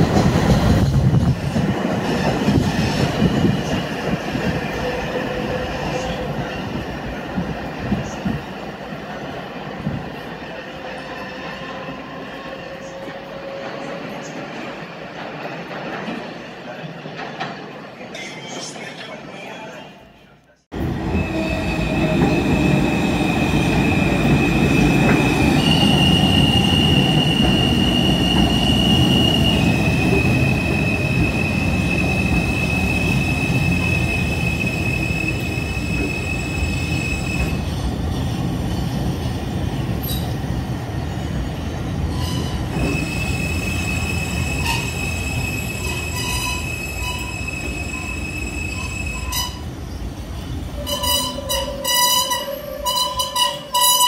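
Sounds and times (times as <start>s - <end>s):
subway train rumbling: 0.0s - 54.0s
high wheel squeal: 42.1s - 50.0s.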